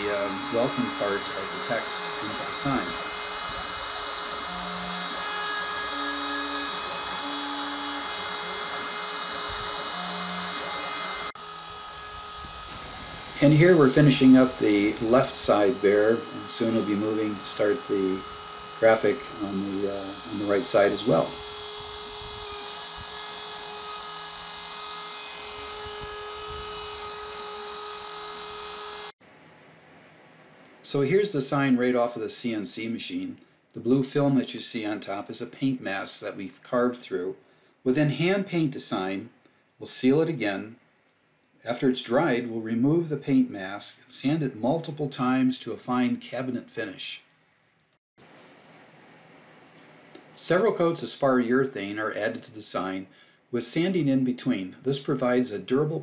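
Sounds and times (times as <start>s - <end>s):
router spindle carving wood: 0.0s - 29.1s.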